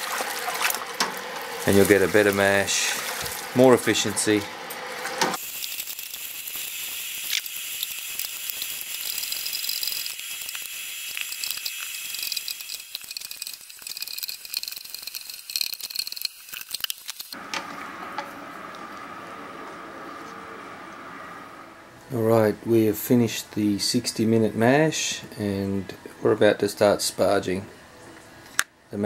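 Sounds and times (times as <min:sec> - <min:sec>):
malt pouring hiss: 0:05.4 - 0:17.4
stirring rattles and clicks: 0:08.2 - 0:17.6.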